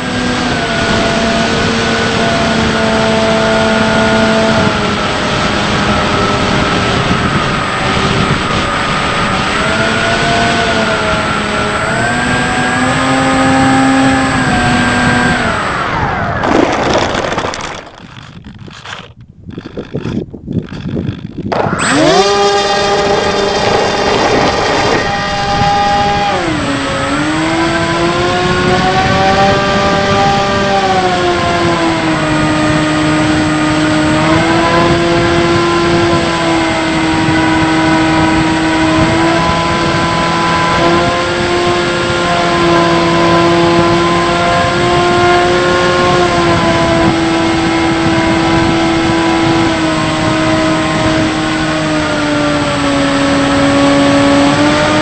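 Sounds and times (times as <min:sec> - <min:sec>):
electric motor and propeller whine: 0:00.0 - 0:55.0.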